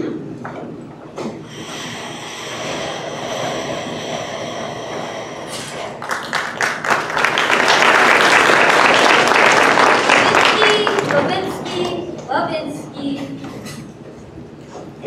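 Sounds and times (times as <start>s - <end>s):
audience applause: 5.7s - 11.9s.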